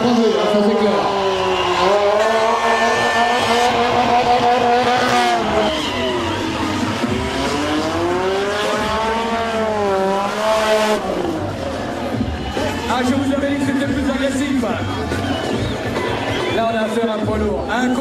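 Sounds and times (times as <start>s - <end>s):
motorcycle engine revving: 0.0s - 12.3s.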